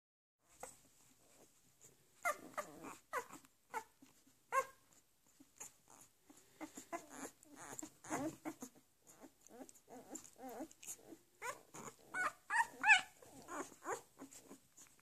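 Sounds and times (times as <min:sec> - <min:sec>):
puppies squeaking and whimpering: 0:02.2 - 0:15.0.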